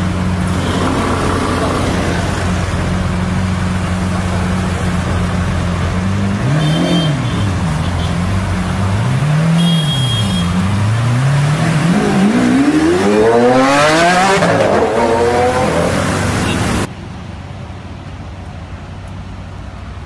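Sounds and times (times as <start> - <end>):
sports car engine revving: 0.2 - 16.9.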